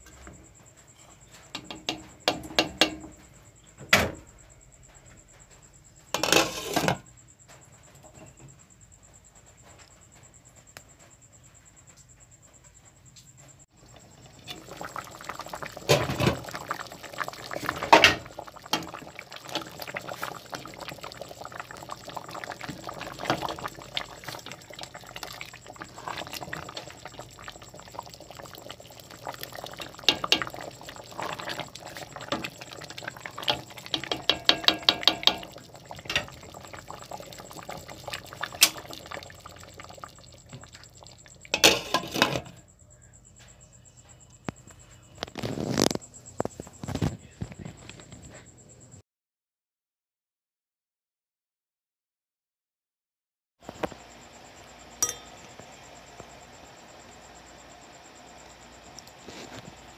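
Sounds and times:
water boiling and bubbling: 13.7s - 42.6s, 45.2s - 47.1s, 53.6s - 59.9s
pot and glass lid clinking: 33.4s - 36.3s, 55.0s - 55.5s
glass lid clattering: 55.0s - 55.4s.

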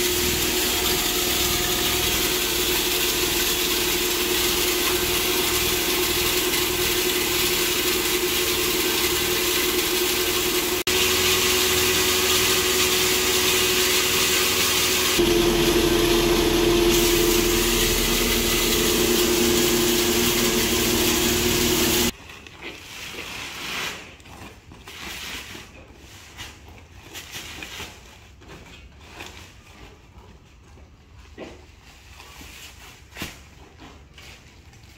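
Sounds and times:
grain mill grinding: 0.0s - 25.2s.

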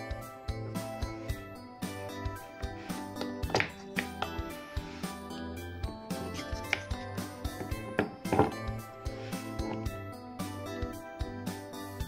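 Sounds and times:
light background music: 0.0s - 12.0s.

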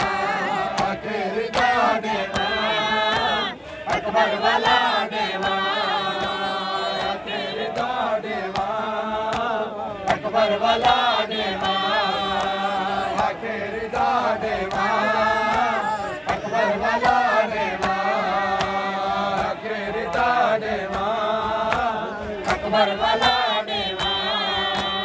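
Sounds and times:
hands slapping bare chests: 0.0s - 25.0s
men chanting together: 0.0s - 25.0s.

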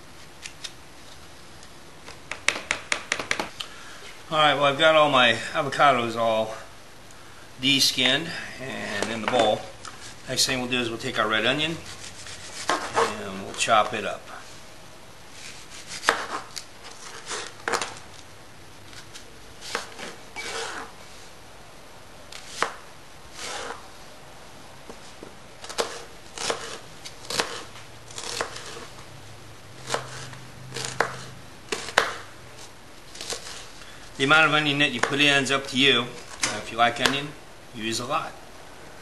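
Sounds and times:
knife chopping on plastic board: 2.3s - 3.5s, 12.6s - 13.1s, 15.9s - 16.5s, 19.7s - 20.9s, 25.6s - 28.9s, 29.8s - 32.3s, 35.0s - 35.2s.

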